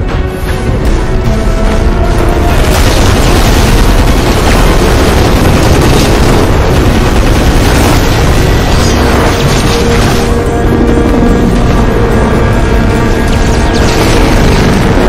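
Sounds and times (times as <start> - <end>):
flying debris: 2.2 - 15.0
rumbling explosion blast: 2.4 - 12.4, 13.0 - 15.0.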